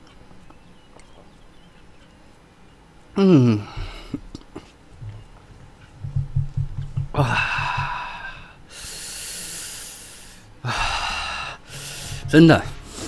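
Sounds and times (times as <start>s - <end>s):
man groaning: 3.2s - 4.0s, 7.2s - 8.5s
man breathing hard: 7.2s - 13.0s.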